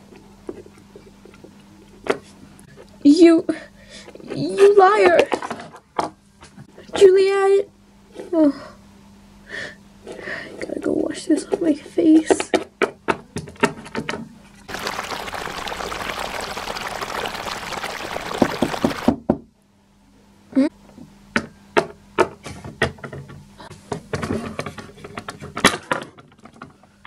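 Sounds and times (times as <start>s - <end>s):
water running from a tap: 14.7s - 19.1s.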